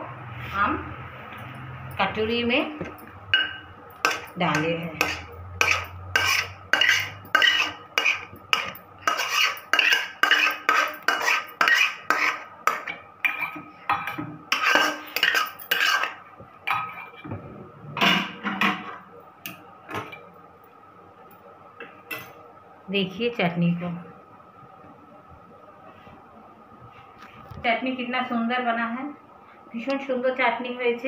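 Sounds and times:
spatula clanking on metal: 3.3s - 17.1s
metal spatula scraping a pan: 3.4s - 13.6s, 14.5s - 16.2s.

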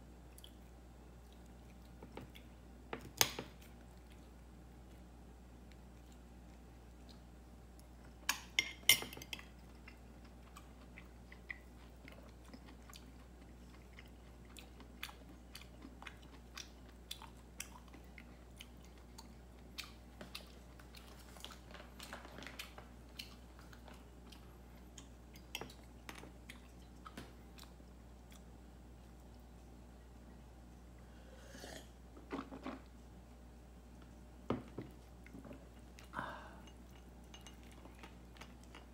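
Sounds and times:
cat chewing food: 0.3s - 2.7s, 9.2s - 29.8s, 32.3s - 38.9s.

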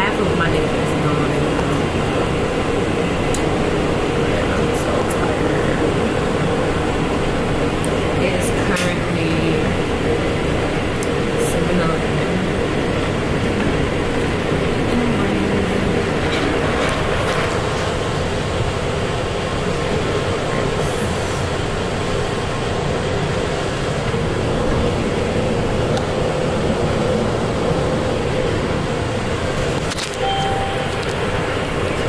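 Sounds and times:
train interior rumble: 0.0s - 32.0s
brief high tone: 30.2s - 31.5s.

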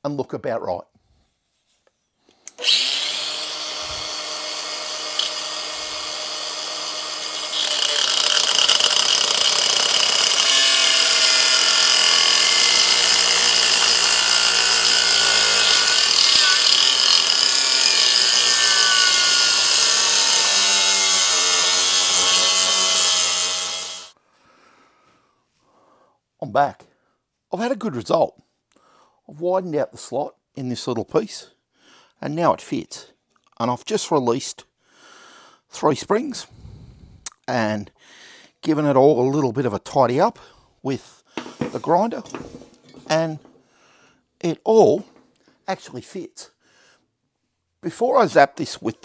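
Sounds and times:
angle grinder spinning free: 2.5s - 24.2s
grinder screeching cutting metal: 2.6s - 24.1s.

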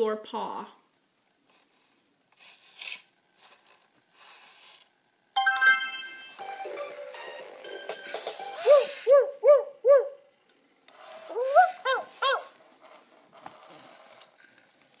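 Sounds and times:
robot dog rising whine: 6.4s - 10.3s, 11.0s - 12.6s
robot dog electronic yips: 8.4s - 10.2s, 11.2s - 12.5s.

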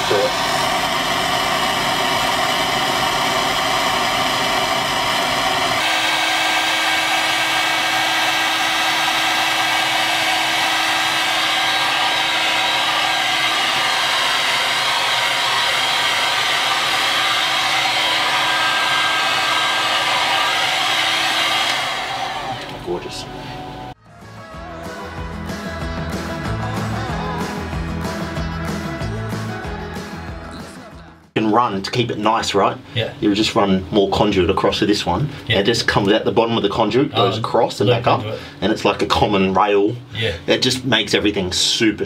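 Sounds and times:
heat gun blowing: 0.0s - 22.8s
steady hum: 0.0s - 24.0s.

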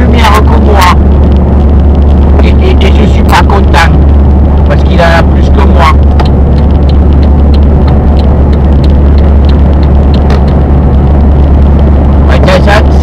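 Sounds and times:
car engine drone: 0.0s - 13.0s
faint ticking: 3.7s - 12.3s.

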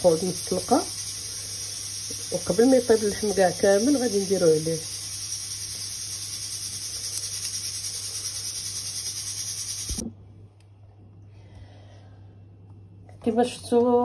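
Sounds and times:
pressure cooker hissing: 0.0s - 10.0s
faint hum: 0.0s - 14.0s.

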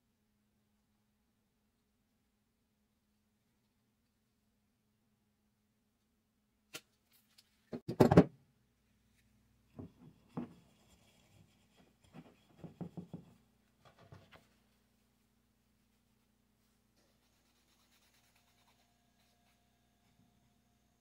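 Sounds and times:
loud clatter on workbench: 7.8s - 8.3s
faint steady hum: 8.4s - 21.0s.

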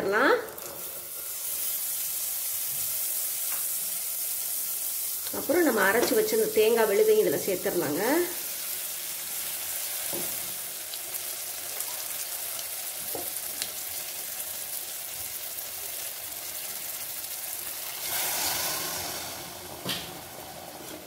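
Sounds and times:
masala sizzling in a pot: 0.0s - 21.0s
water poured onto hot food: 17.7s - 21.0s.

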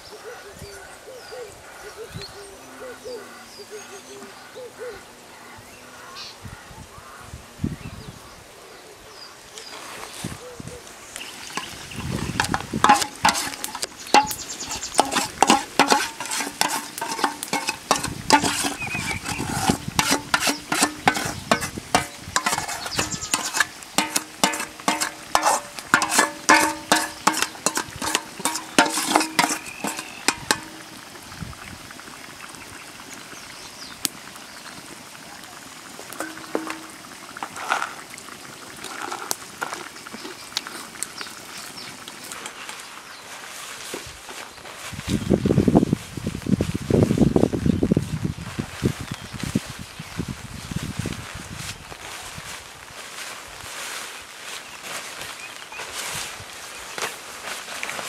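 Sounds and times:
utensil scraping in a pan: 11.2s - 31.2s, 36.1s - 38.1s, 38.8s - 40.9s.

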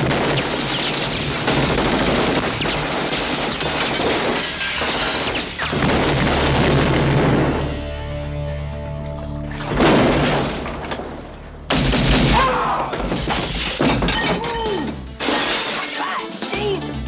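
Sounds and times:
glass shattering: 0.0s - 7.7s, 11.7s - 16.6s
background music: 5.5s - 17.0s.

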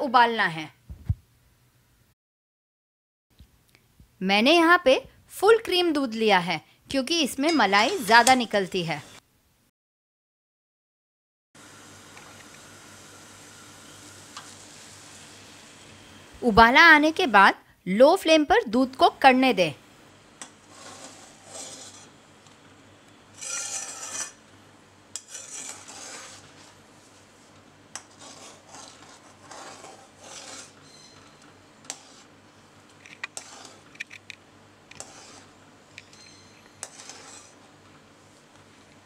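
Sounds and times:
spatula scraping metal pan: 7.5s - 8.5s, 20.6s - 22.2s, 23.3s - 24.4s, 25.2s - 26.8s, 28.0s - 32.4s, 33.3s - 33.9s, 34.9s - 37.7s.

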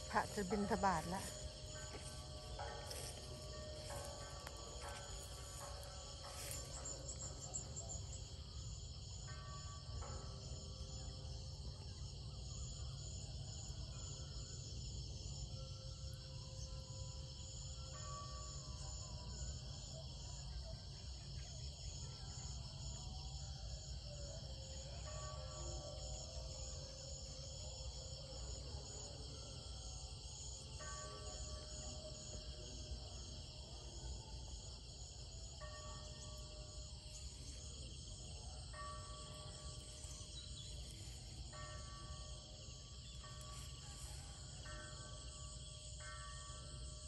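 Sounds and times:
insects trilling: 0.0s - 11.1s, 24.6s - 47.0s
faint held musical tones: 0.0s - 47.0s.

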